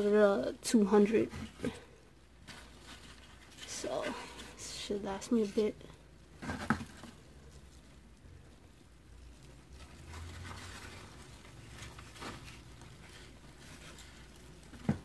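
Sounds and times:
cardboard rustling and scraping: 1.0s - 5.8s, 6.4s - 7.3s, 9.6s - 15.0s
soft scratchy strokes: 7.2s - 14.8s.

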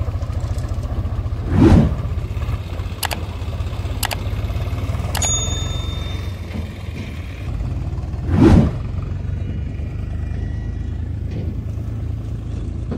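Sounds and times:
diesel tractor engine throbbing: 0.0s - 12.9s
loud whoosh: 1.4s - 2.2s, 8.2s - 8.9s.

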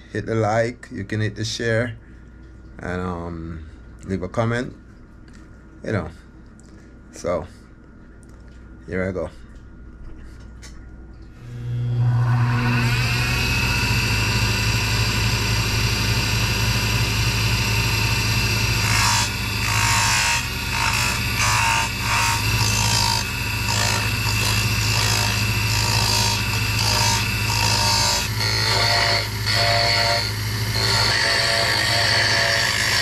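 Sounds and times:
wood lathe motor humming: 11.4s - 33.0s.

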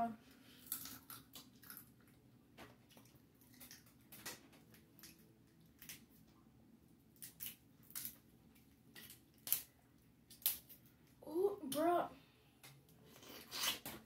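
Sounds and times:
person chewing food: 0.2s - 6.4s
seafood shells snapping apart: 0.6s - 1.9s, 7.2s - 8.2s, 8.9s - 9.7s, 10.3s - 10.8s.

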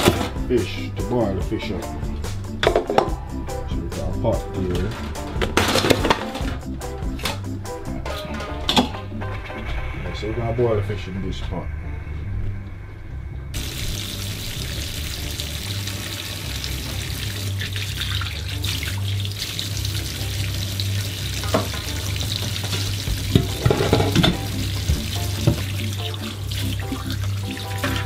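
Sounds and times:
background music: 0.0s - 28.0s
tap water running into sink: 13.6s - 28.0s.

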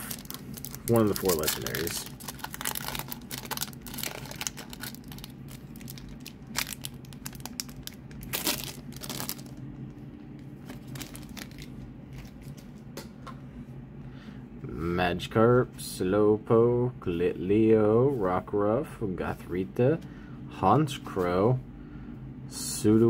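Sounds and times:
foil wrapper crinkling: 0.0s - 9.6s, 10.6s - 12.6s.

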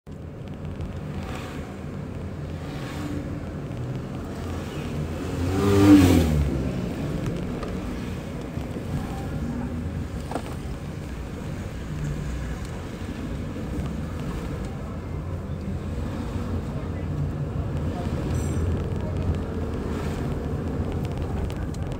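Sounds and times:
car cabin road rumble: 0.1s - 21.9s.

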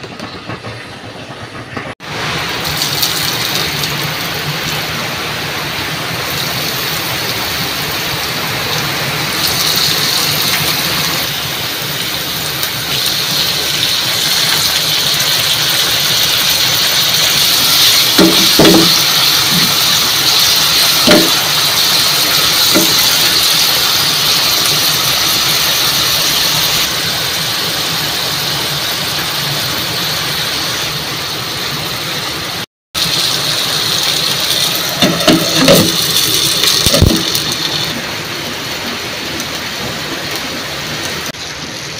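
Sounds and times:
food sizzling in hot oil: 2.0s - 31.4s, 32.9s - 41.9s
wooden spoon knocking on pan: 18.2s - 19.8s, 21.0s - 21.5s, 22.7s - 23.1s.

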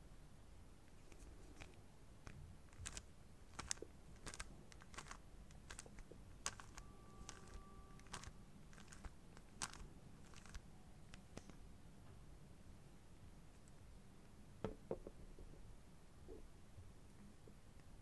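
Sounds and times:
puzzle cube clicking: 1.0s - 11.6s
cube squeaking: 2.7s - 10.6s.

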